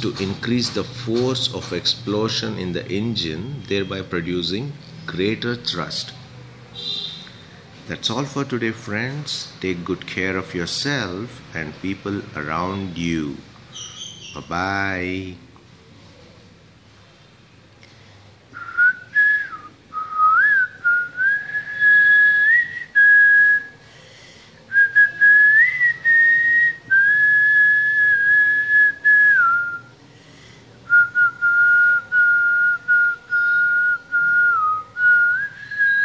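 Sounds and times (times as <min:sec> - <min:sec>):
person whistling a slow tune: 0:18.6 - 0:23.8, 0:30.9 - 0:36.0.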